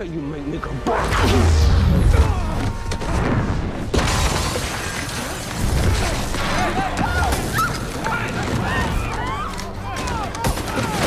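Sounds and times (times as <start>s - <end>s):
heavy crashes and smashing debris: 2.4s - 9.3s.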